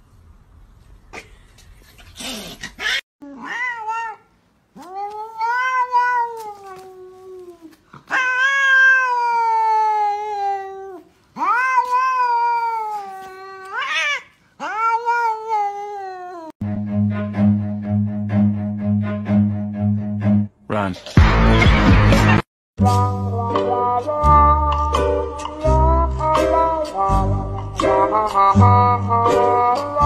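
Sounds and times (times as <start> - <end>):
cat yowling meows: 2.8 - 16.6.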